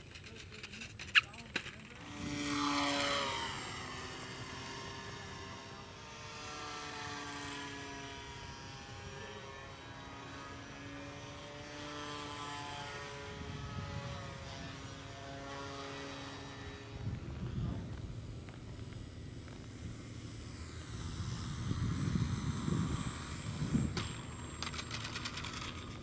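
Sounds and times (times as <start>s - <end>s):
model plane motor whining: 0.0s - 26.0s.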